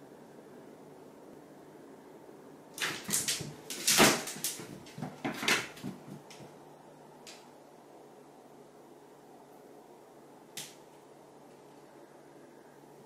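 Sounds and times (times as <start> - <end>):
cat paws thudding and scrabbling: 2.8 - 6.6.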